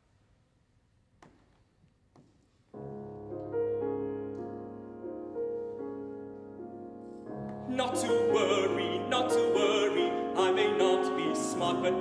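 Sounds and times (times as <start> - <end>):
piano playing slow chords: 2.8 - 12.0.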